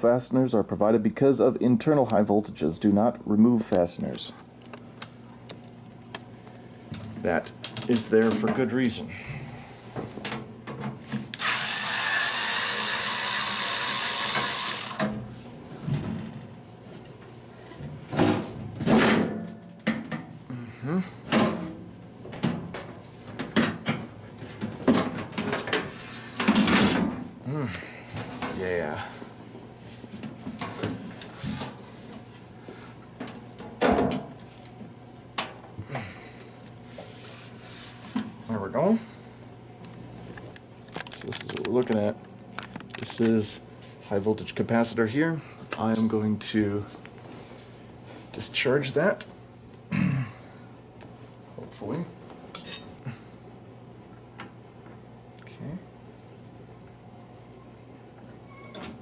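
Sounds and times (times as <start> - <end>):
power drill running: 11.4 - 15.1.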